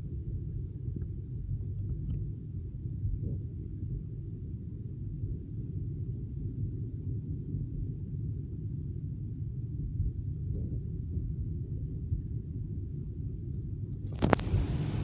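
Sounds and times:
car cabin road and engine rumble: 9.9 - 15.0.

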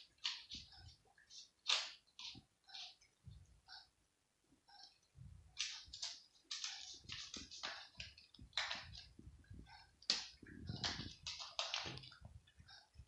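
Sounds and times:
cats crunching dry kibble: 5.6 - 9.1, 10.1 - 12.2.

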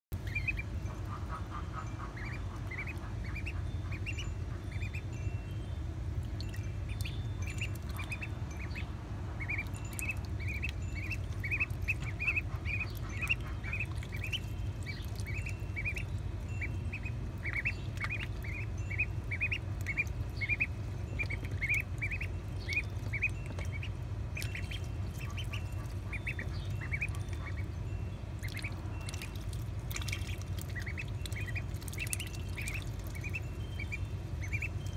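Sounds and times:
steady low hum: 0.1 - 34.9
ducklings peeping: 0.2 - 5.2, 6.2 - 34.9
small water splashes: 6.2 - 8.8, 9.4 - 27.7, 28.3 - 34.9.

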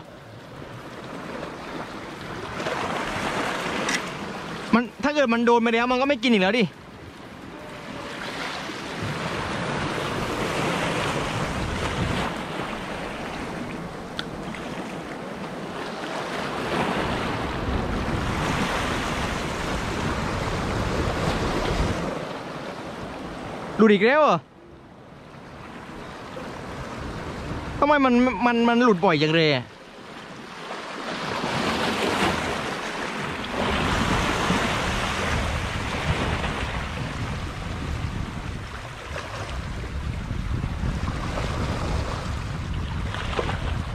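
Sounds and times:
waves washing against rocks: 0.9 - 6.7, 7.4 - 24.2, 30.2 - 43.9
wind rumbling on microphone: 6.8 - 23.8, 25.0 - 27.9, 31.2 - 43.9.

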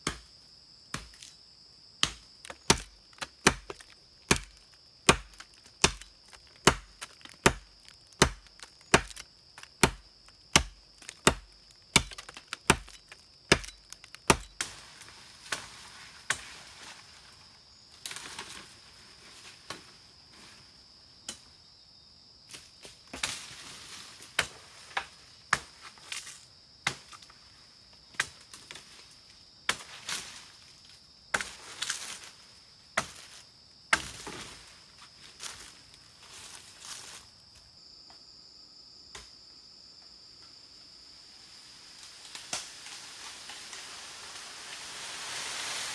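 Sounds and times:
machete chopping tree trunk: 0.0 - 0.3, 0.9 - 1.3, 2.0 - 14.8, 33.9 - 34.3
knocks and rustling of brush: 2.0 - 17.3, 22.5 - 27.4, 28.0 - 37.6.

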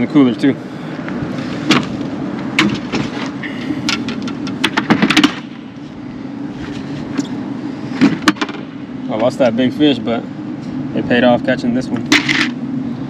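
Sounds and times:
low steady hum: 0.0 - 13.0
gear clattering in truck bed: 1.3 - 5.8, 8.0 - 9.5
tailgate knocking and rattling: 1.6 - 3.3, 3.9 - 5.5.

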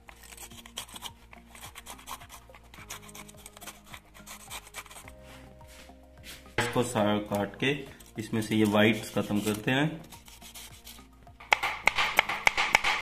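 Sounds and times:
knife cutting pepper: 0.0 - 5.2
quiet background music: 0.0 - 13.0.

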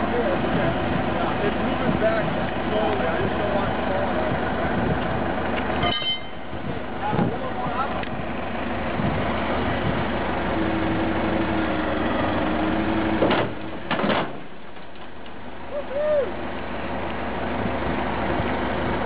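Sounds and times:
diesel engine running: 0.0 - 19.0
sharp metal clunks: 13.2 - 14.4.

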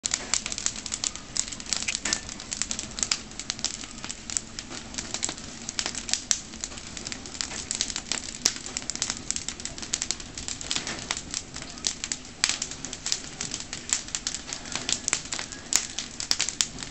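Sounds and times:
wood fire crackling: 0.0 - 16.9.

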